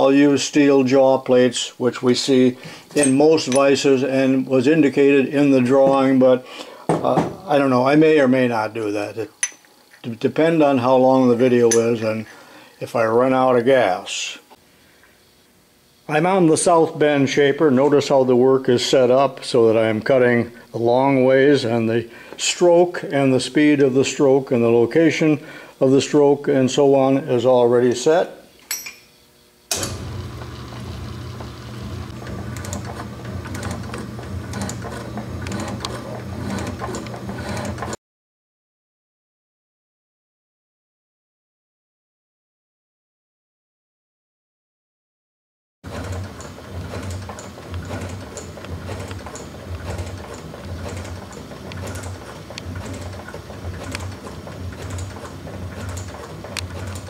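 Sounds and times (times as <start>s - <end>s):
metal shaper motor hum: 29.7s - 38.0s, 45.9s - 57.0s.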